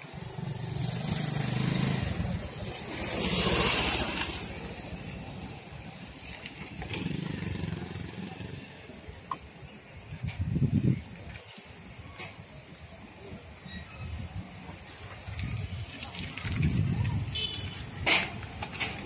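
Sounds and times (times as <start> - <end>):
traffic rumble: 0.0 - 19.0
vehicle passing close by: 0.4 - 5.5.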